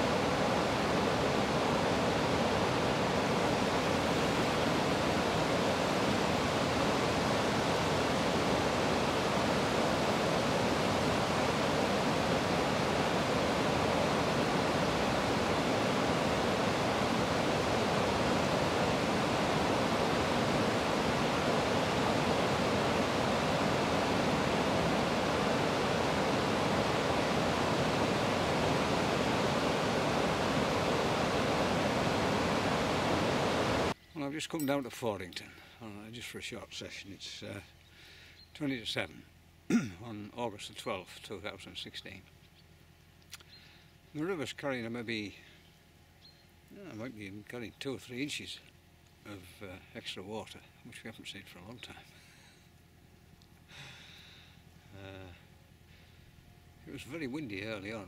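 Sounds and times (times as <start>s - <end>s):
river water rushing over a weir: 0.0s - 34.0s.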